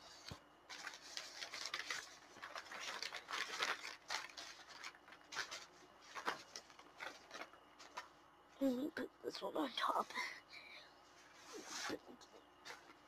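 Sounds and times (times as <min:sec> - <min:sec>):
paintings rustling and scraping: 0:00.0 - 0:08.7, 0:10.9 - 0:13.0.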